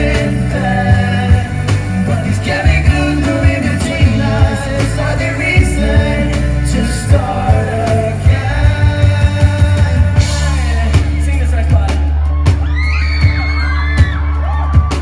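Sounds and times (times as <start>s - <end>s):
person singing: 0.0s - 11.4s
bass guitar: 0.0s - 15.0s
drum kit beat: 0.0s - 15.0s.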